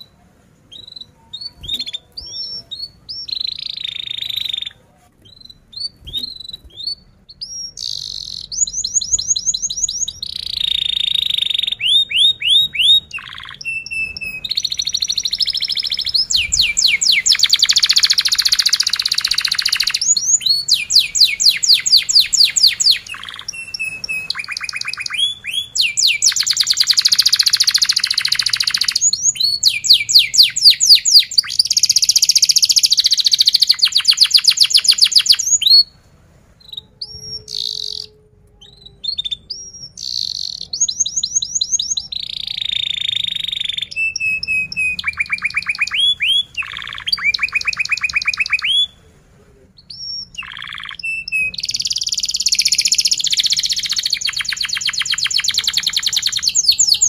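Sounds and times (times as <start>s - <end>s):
canary singing trills: 0.0s - 36.0s, 36.6s - 49.0s, 49.7s - 57.0s.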